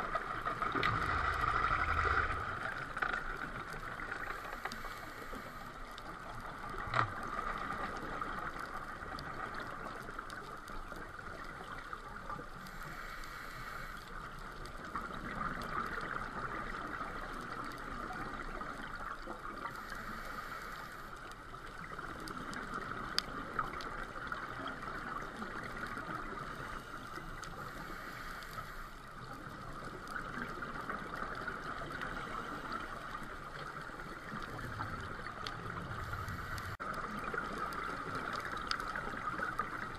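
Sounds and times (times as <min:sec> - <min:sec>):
regulator bubbles rushing: 0:00.0 - 0:04.2, 0:33.6 - 0:39.9
underwater steady hiss: 0:00.0 - 0:39.9.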